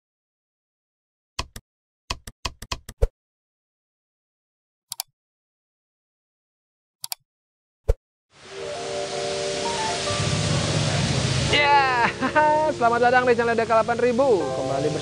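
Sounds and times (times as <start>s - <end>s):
noisy wash: 8.4s - 15.0s.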